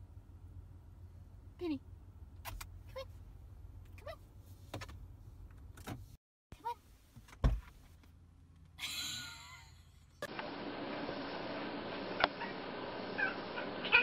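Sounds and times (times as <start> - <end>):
hissing whirr: 10.2 - 14.0.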